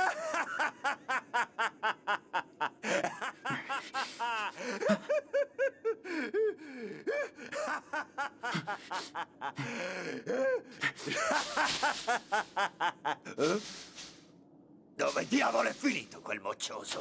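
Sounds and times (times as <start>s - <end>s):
man laughing loudly: 0.0s - 6.0s, 7.5s - 13.8s.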